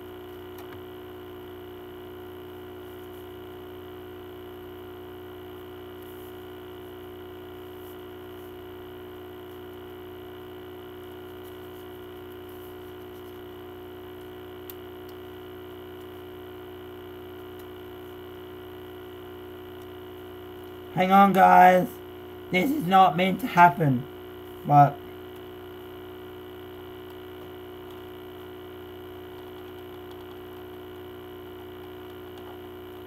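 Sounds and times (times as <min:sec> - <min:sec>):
electrical mains hum: 0:00.0 - 0:33.0.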